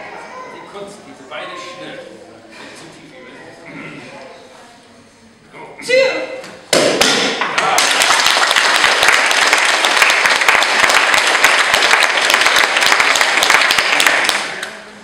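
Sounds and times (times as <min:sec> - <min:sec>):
people clapping: 0:06.8 - 0:15.0.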